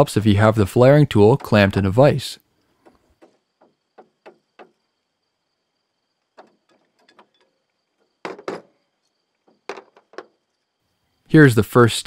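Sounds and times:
tool knocking on plastic: 2.8s - 4.8s, 8.2s - 8.7s.

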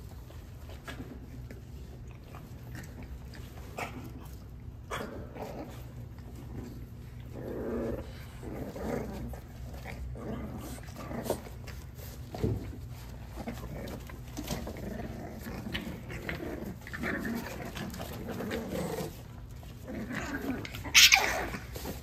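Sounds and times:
puppies growling and grunting: 0.0s - 22.0s
paws scuffling on pads: 8.3s - 22.0s.

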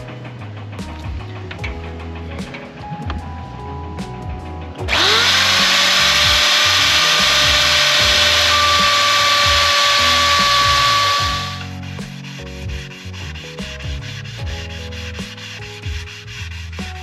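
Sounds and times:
electric router motor whine: 4.9s - 11.6s.

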